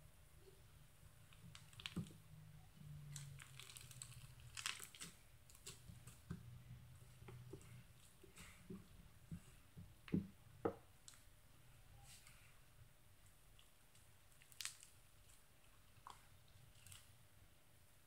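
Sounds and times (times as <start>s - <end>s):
slime clicks and crackling pops: 14.4s - 15.0s.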